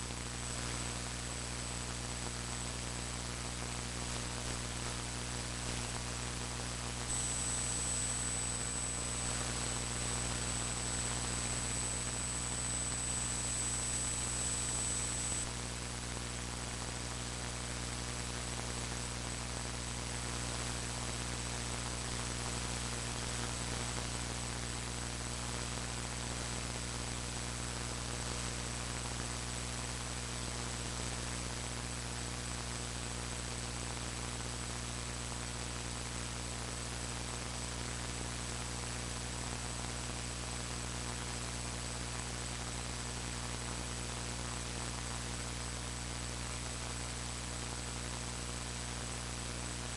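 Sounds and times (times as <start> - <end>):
electrical mains hum: 0.0 - 34.5
static hiss: 0.0 - 49.9
thin high-pitched whine: 7.0 - 15.5.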